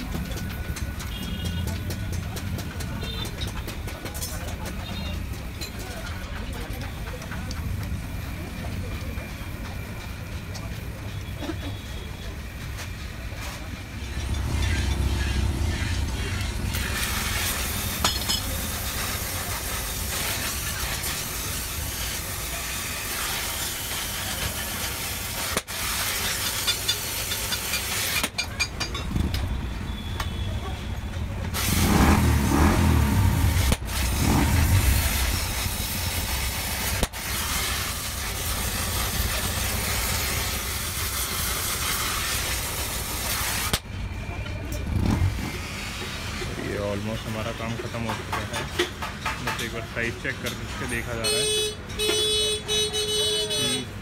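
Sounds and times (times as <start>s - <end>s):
street traffic: 0.0s - 54.0s
workshop background noise: 0.0s - 54.0s
vehicle passing: 13.9s - 18.0s.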